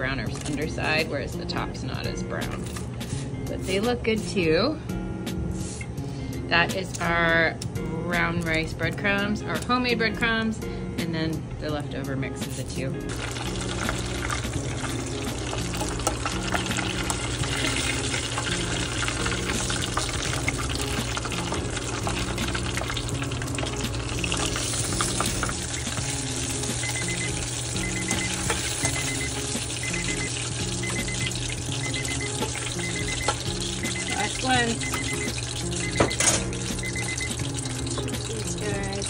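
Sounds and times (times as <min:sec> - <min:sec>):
food deep-frying in oil: 0:12.6 - 0:39.0.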